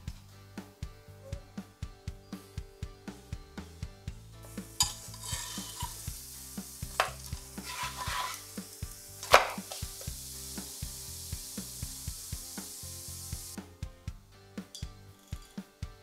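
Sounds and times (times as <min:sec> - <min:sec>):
background music with steady beat: 0:00.0 - 0:16.0
dough sizzling in frying pan: 0:04.4 - 0:13.6
sharp hits on pan: 0:04.8 - 0:06.0, 0:06.8 - 0:08.4, 0:09.2 - 0:09.8.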